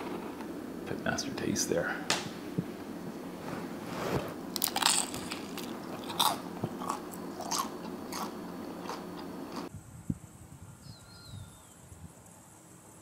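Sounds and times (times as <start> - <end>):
chewing fried food with crunches: 4.5 - 9.7.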